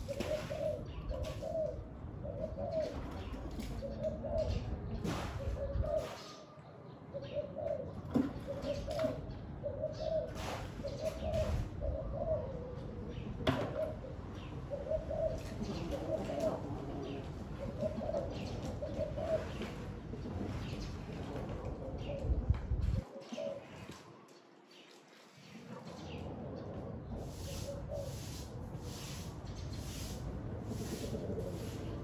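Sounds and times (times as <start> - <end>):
dove cooing: 0.0 - 24.2, 25.5 - 29.2, 29.8 - 32.0
wind rumble on microphone: 2.8 - 6.2, 11.0 - 18.0, 19.5 - 23.1.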